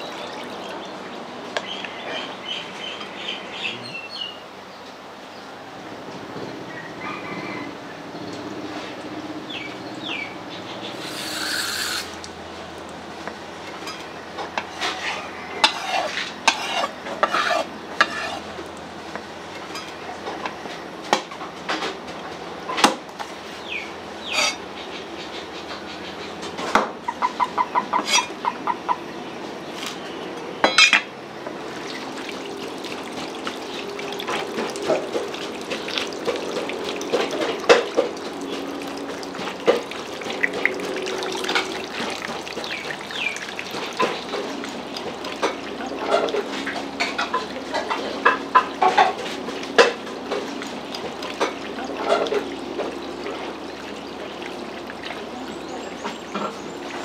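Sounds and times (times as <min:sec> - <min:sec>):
utensils and dishes clinking: 0:39.4 - 0:50.5, 0:51.1 - 0:53.5.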